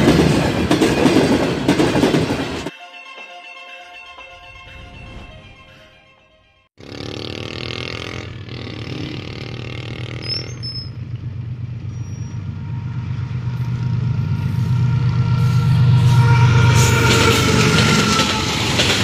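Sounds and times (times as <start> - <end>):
locomotive engine drone: 6.4 - 19.0.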